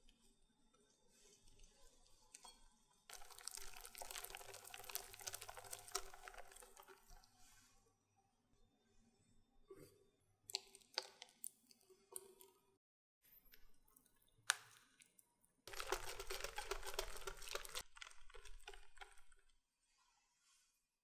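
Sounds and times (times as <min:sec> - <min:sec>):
whisk beating batter in glass bowl: 0:02.4 - 0:07.2, 0:15.7 - 0:19.5.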